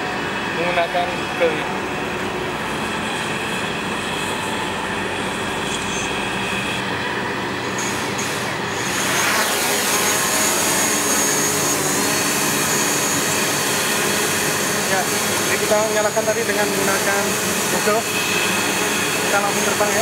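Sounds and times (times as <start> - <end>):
drone propellers whining: 0.0 - 20.0.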